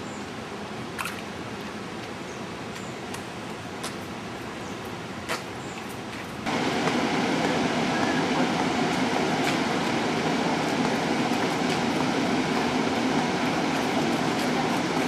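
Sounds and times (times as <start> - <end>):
distant falling water rushing: 6.5 - 15.0.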